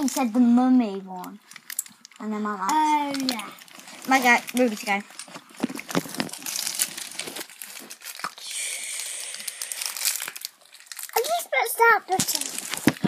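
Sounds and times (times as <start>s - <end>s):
plastic packaging crinkling: 1.2s - 13.0s.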